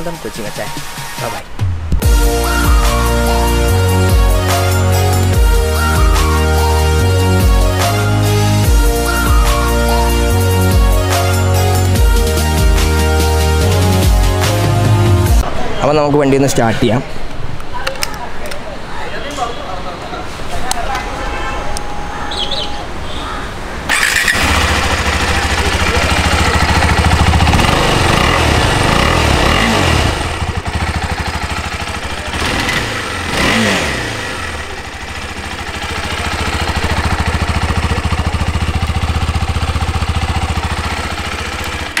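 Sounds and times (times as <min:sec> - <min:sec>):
motorcycle engine idling and revving: 0:01.9 - 0:15.4, 0:23.9 - 0:42.0
electric starter cranking: 0:23.9 - 0:30.6.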